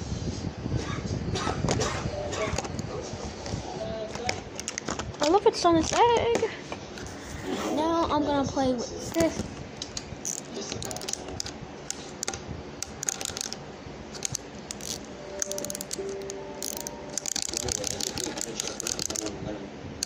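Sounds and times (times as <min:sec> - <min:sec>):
plastic toys clicking and rattling: 0:04.1 - 0:06.5, 0:09.2 - 0:19.4.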